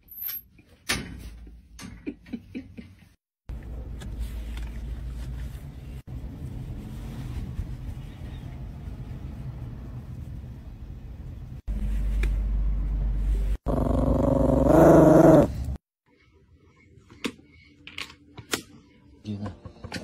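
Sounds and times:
small dog growling and snarling: 13.6s - 15.8s.

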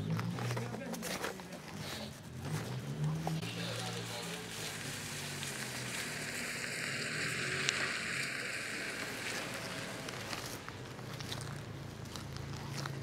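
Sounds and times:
tyres hissing on wet road: 3.3s - 10.6s.

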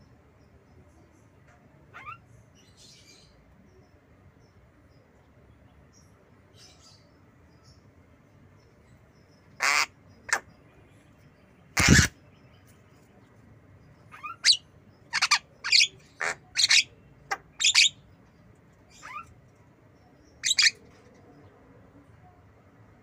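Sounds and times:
myna squawking and chirping: 11.8s - 12.2s, 14.1s - 18.0s, 20.4s - 20.8s.

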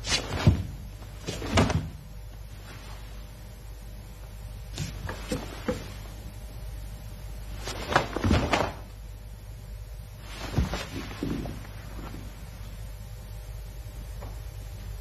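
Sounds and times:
cotton uniform snapping and rustling: 0.0s - 3.2s, 4.7s - 6.2s, 7.5s - 9.0s, 10.2s - 12.8s
bare feet sliding on mat: 0.0s - 3.5s, 4.7s - 6.3s, 7.4s - 9.0s, 10.1s - 12.9s
steady low hum: 0.0s - 15.0s.

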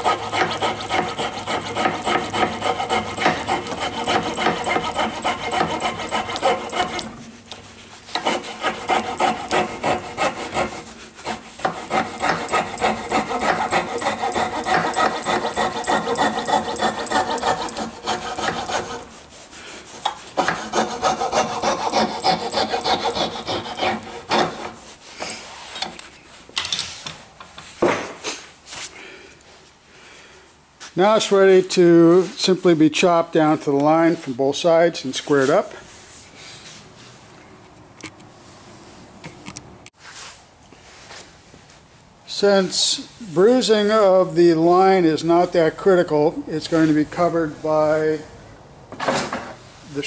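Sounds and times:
saw cutting wood: 0.0s - 24.9s.

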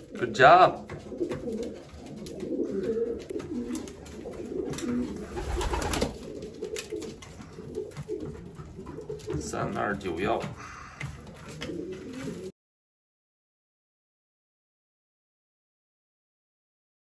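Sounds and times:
pigeons cooing: 0.0s - 12.5s.

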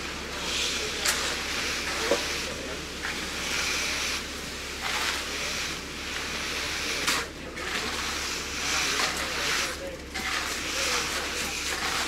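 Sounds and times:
hand tool scraping wet concrete: 6.9s - 12.0s.

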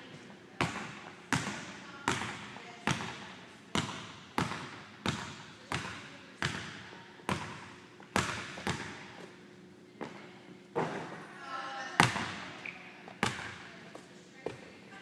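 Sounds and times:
basketball bouncing on wooden floor: 3.8s - 9.0s.

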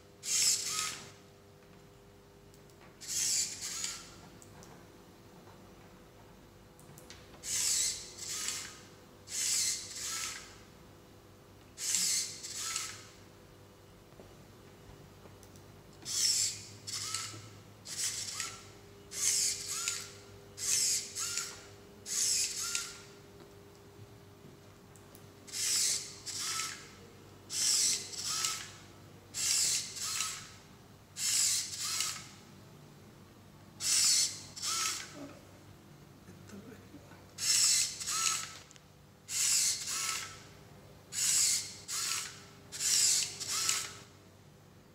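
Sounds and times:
servo motors whirring: 0.2s - 1.2s, 3.0s - 4.2s, 7.4s - 10.6s, 11.8s - 13.1s, 16.1s - 23.1s, 25.5s - 30.6s, 31.2s - 32.4s, 33.8s - 35.2s, 37.4s - 38.7s, 39.3s - 40.5s, 41.1s - 44.1s.

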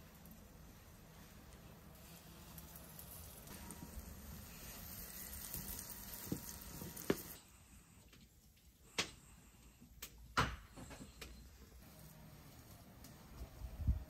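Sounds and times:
potato slices sizzling in oil: 0.0s - 7.4s.

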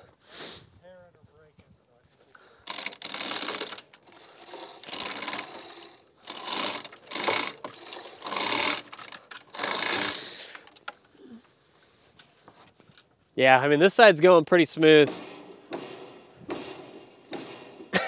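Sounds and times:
chain hoist ratcheting: 2.6s - 11.2s, 15.0s - 18.0s.

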